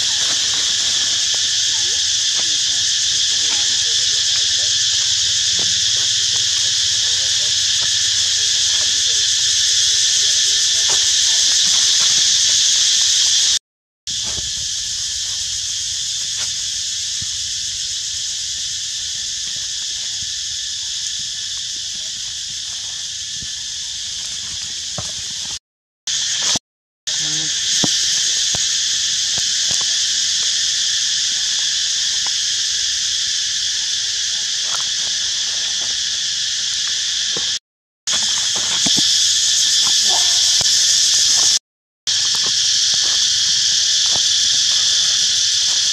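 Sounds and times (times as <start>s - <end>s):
high-pitched insects droning: 0.0s - 45.9s.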